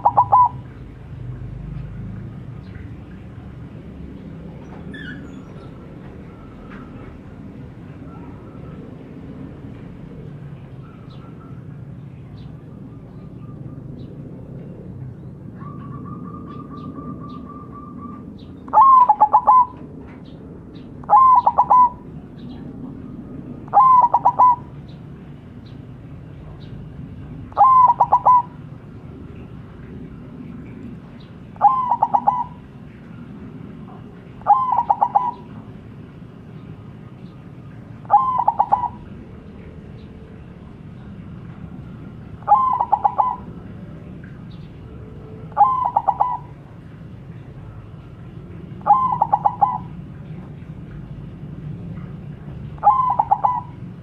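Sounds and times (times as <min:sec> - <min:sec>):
dove cooing: 0:00.0 - 0:01.5, 0:15.6 - 0:19.9, 0:21.0 - 0:25.0, 0:27.4 - 0:35.9, 0:37.9 - 0:50.7, 0:51.9 - 0:54.0.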